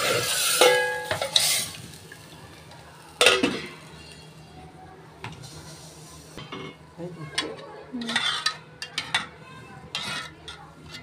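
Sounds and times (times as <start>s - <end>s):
metal plates clattering and scraping: 8.0s - 11.0s.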